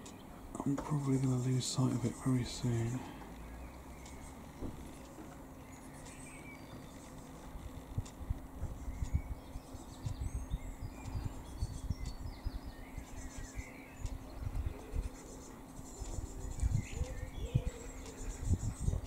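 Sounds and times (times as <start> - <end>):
small birds chirping: 0.0 - 19.0
steady low hum: 0.0 - 19.0
low thumps and rumble: 4.0 - 5.4, 6.7 - 13.0.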